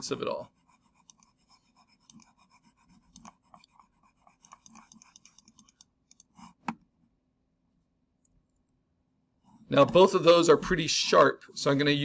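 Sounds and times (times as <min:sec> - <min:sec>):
scratchy pen ticks: 0:00.7 - 0:06.5.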